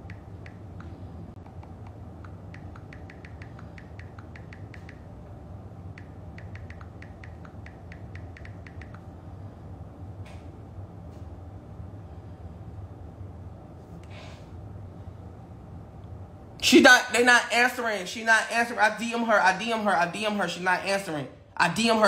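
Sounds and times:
low hum: 0.0s - 16.6s.

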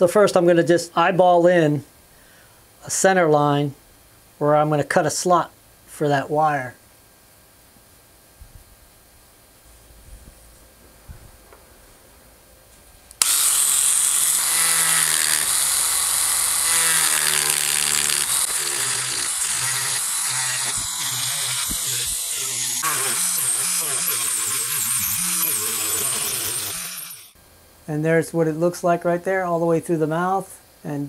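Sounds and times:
rotary tool cutting wood: 13.2s - 27.4s.

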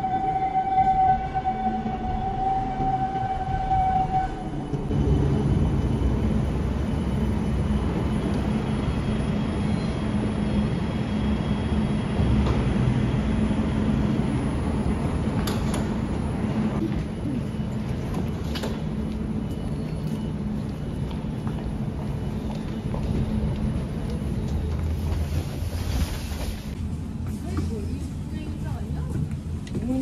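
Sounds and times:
tram humming: 0.0s - 30.0s.

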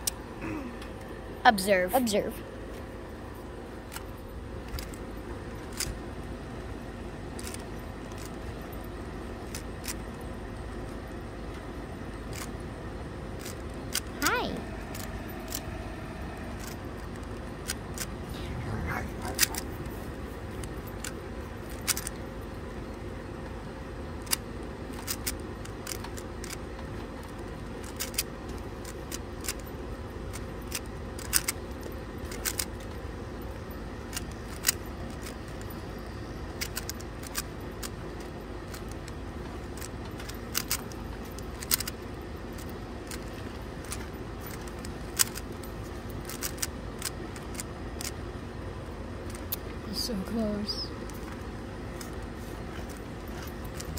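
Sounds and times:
low background rumble: 0.0s - 53.9s
puzzle cube layers clicking: 19.2s - 19.9s, 20.6s - 22.2s, 24.2s - 26.6s, 27.3s - 29.6s, 36.6s - 38.0s, 38.7s - 45.6s, 46.2s - 48.2s.

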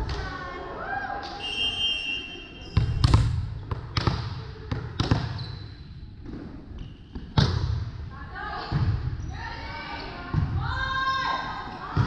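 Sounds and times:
volleyball bouncing on gym floor: 2.7s - 5.6s, 7.1s - 8.0s, 8.6s - 9.2s, 10.2s - 10.8s.

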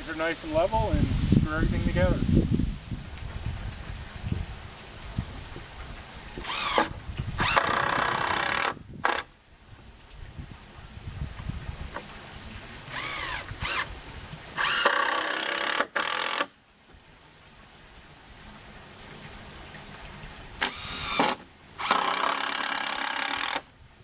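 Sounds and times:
cordless driver driving screws: 6.4s - 9.3s, 14.6s - 16.5s, 20.6s - 23.6s.

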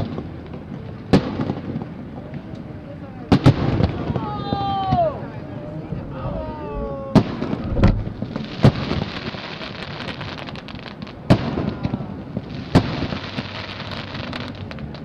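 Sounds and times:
dense firework crackling: 0.0s - 15.0s
firework shells bursting: 7.1s - 15.0s.

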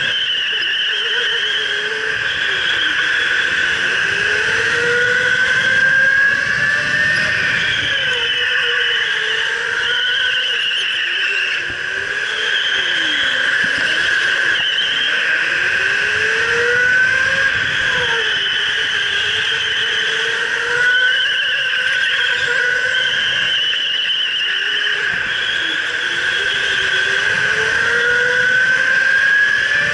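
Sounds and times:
electric go-kart motor whining: 0.0s - 29.9s.

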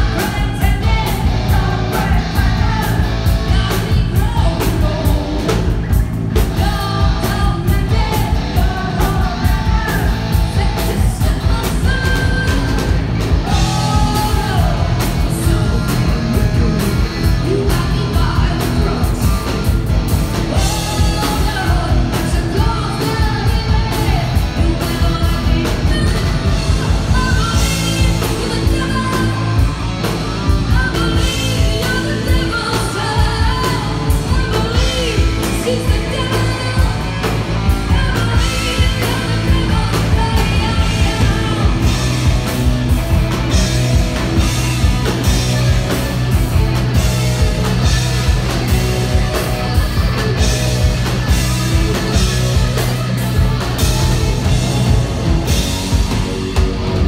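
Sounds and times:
woman singing: 0.0s - 5.8s, 6.4s - 19.8s, 20.4s - 45.5s
heavy metal band playing: 0.0s - 57.0s.

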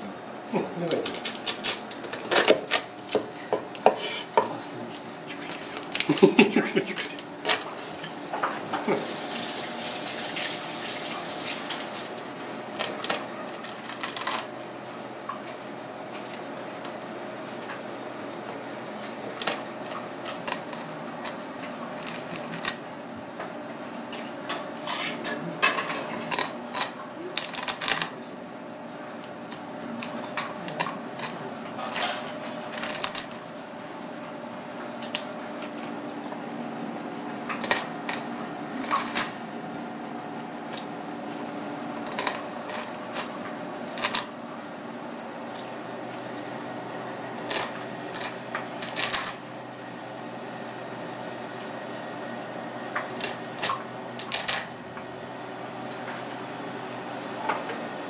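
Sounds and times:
steady background hum: 0.0s - 58.0s
crab shell cracking under rolling pin: 0.9s - 3.2s, 12.8s - 14.5s, 19.4s - 22.8s, 26.2s - 28.2s, 30.6s - 33.4s, 37.5s - 39.4s, 42.0s - 44.3s, 47.4s - 49.4s, 53.0s - 54.8s.

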